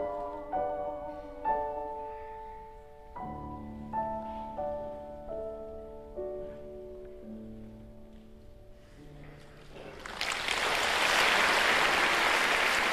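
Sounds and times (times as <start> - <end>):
grand piano slow notes: 0.0 - 10.0
audience applause: 9.8 - 12.9.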